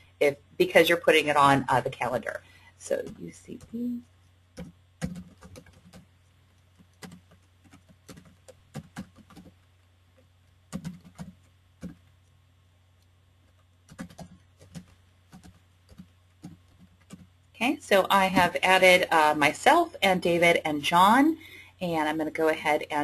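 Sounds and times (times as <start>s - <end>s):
computer keyboard typing: 2.9s - 12.4s, 13.0s - 17.4s.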